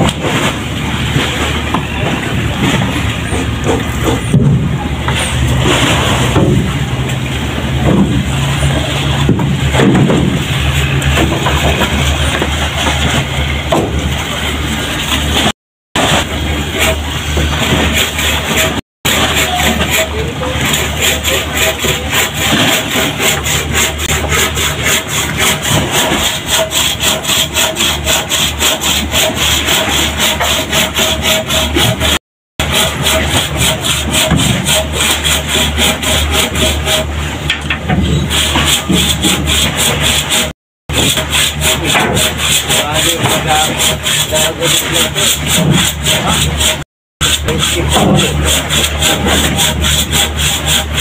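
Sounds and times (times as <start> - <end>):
engine hum: 0.0 - 18.8
hand saw rasping through wood: 2.6 - 4.4, 7.8 - 14.4, 15.0 - 51.0.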